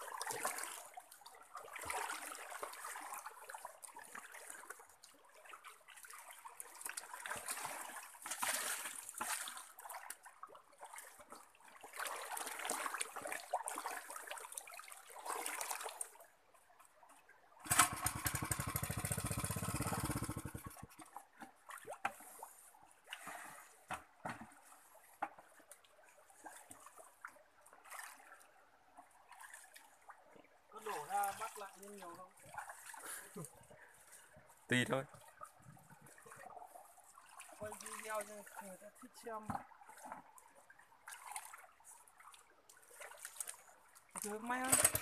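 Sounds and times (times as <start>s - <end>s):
water trickling over mud: 0.0s - 23.8s, 24.4s - 45.0s
small engine pulsing: 17.6s - 20.9s, 44.6s - 45.0s.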